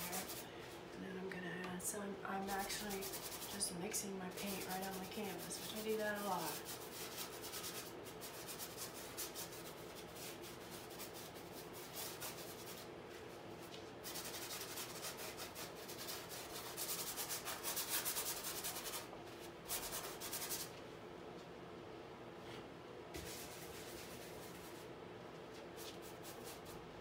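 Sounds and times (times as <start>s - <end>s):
paintbrush scrubbing canvas: 0.0s - 0.4s, 2.4s - 3.7s, 4.3s - 20.7s, 23.2s - 24.9s, 25.5s - 26.8s.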